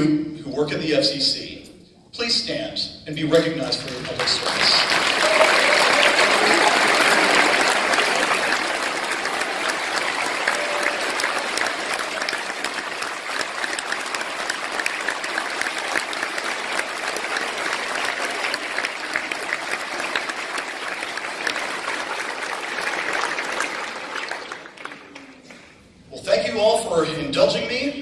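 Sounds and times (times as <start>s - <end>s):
audience applauding: 3.6s - 25.7s.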